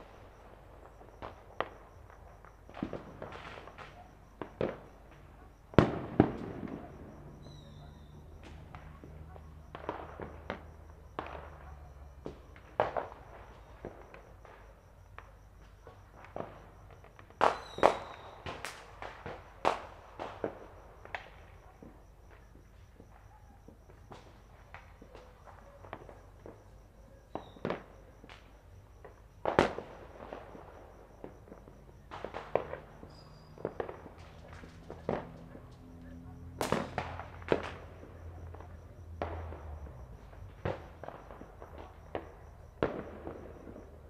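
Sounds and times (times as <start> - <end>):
firecrackers and fireworks banging: 0.0 - 26.7, 27.3 - 35.8, 36.5 - 44.0.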